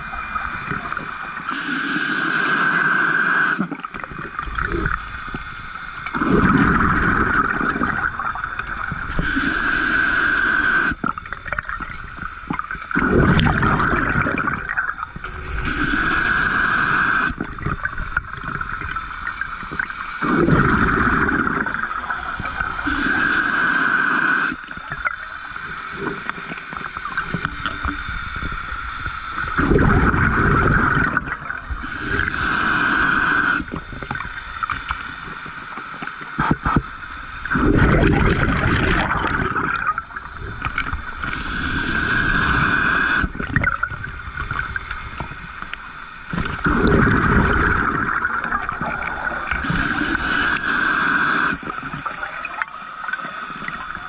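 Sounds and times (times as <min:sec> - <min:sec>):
bubbling exhaled air: 0:00.0 - 0:35.4, 0:36.4 - 0:54.0
steady hiss: 0:00.0 - 0:38.9, 0:39.7 - 0:54.0
diver breathing through regulator: 0:01.4 - 0:03.6, 0:06.1 - 0:11.1, 0:15.2 - 0:17.8, 0:20.1 - 0:26.8, 0:29.5 - 0:35.0, 0:40.1 - 0:43.8, 0:46.5 - 0:53.9.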